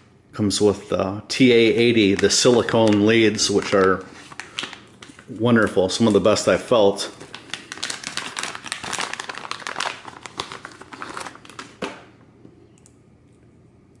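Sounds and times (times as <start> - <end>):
plastic bag crinkling: 1.6 - 12.1.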